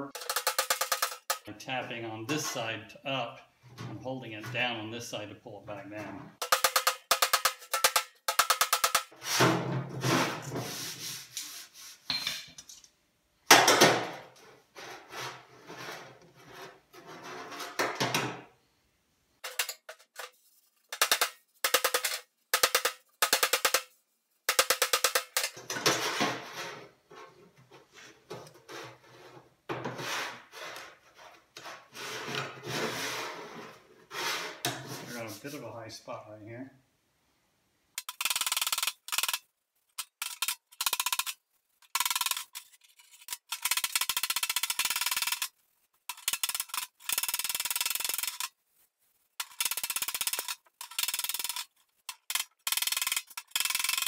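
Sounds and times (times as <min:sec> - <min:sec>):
sanding block scraping steel: 0:10.6 - 0:12.0, 0:30.0 - 0:35.6.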